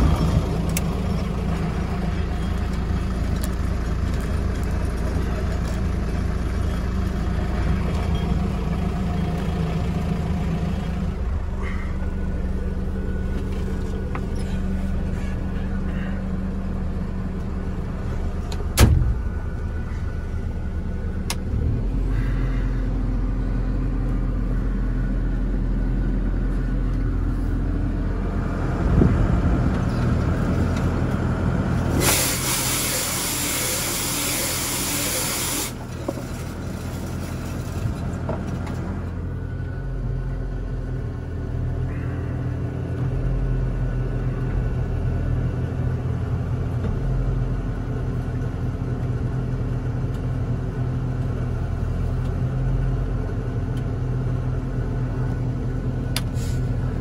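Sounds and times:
low rumble: 0.0s - 32.0s
street sweeper running: 0.0s - 57.0s
loud hiss: 32.0s - 35.8s.

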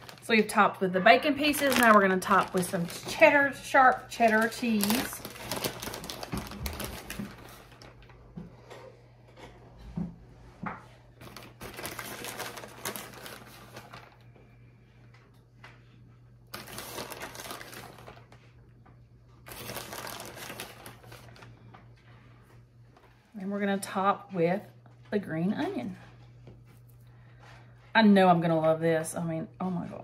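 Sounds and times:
plastic bag crinkling: 0.0s - 8.3s, 11.2s - 14.3s, 16.5s - 18.5s, 19.3s - 21.7s.

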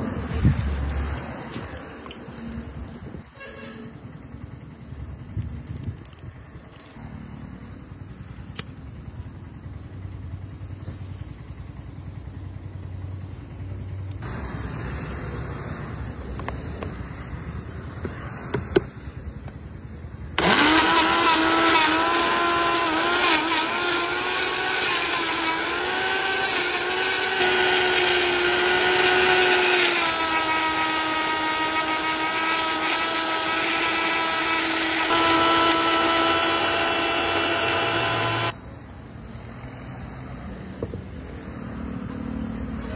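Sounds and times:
blender motor running: 20.4s - 38.6s.

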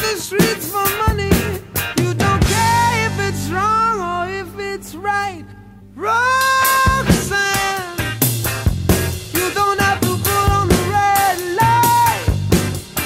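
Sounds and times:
up-tempo rock song: 0.0s - 13.0s.

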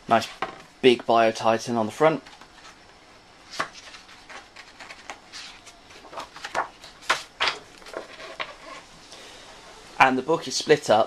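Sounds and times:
book pages turning: 3.4s - 8.9s.

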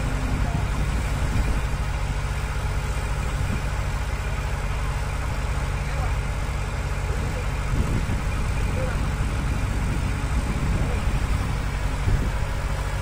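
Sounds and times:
excavator diesel engine droning: 0.0s - 13.0s.

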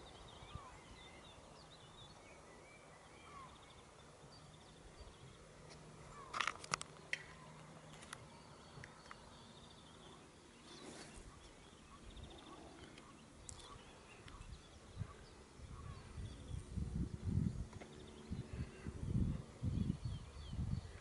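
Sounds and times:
bird chirps: 0.0s - 16.6s.

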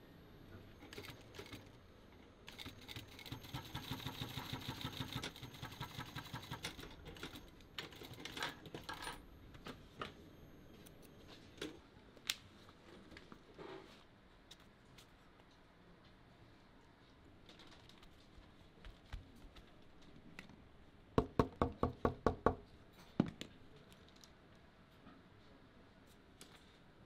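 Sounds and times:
sewing machine stitching: 2.5s - 8.6s.

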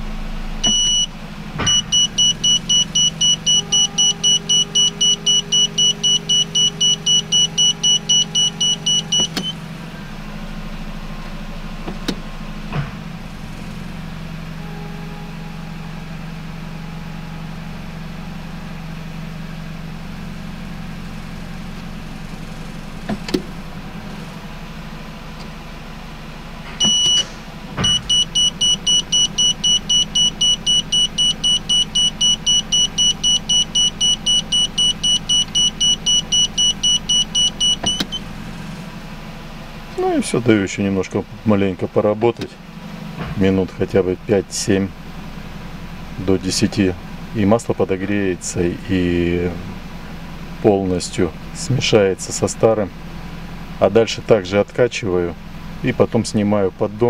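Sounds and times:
car engine idling: 0.0s - 57.0s
reverse warning beeper: 0.6s - 9.6s, 26.8s - 38.3s.

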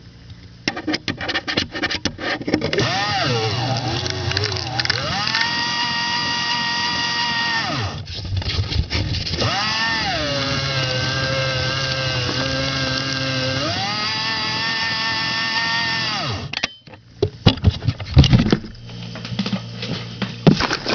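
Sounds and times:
shredder motor whining: 2.8s - 8.1s, 9.3s - 16.5s.

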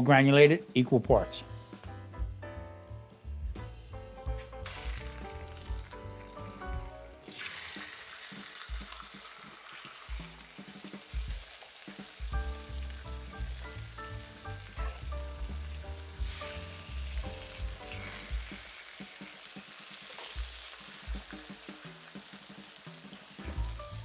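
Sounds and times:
background music with bass: 0.0s - 7.3s, 12.2s - 18.7s, 20.4s - 24.0s
chicken sizzling in pan: 4.2s - 24.0s.

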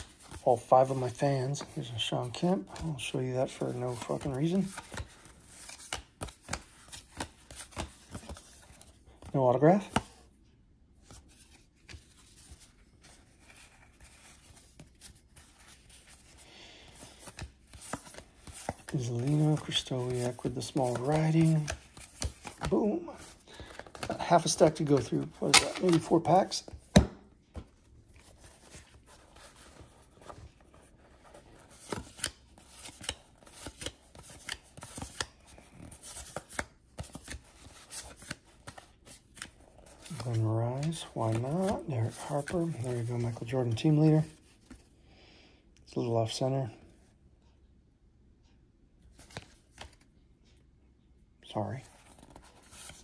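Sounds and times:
cards rustling: 0.0s - 10.3s, 11.0s - 44.9s, 49.0s - 50.1s, 51.5s - 53.0s
soft clicks of cards: 16.9s - 26.3s, 48.4s - 50.6s
cardboard cards snapping and clicking: 24.9s - 27.7s.

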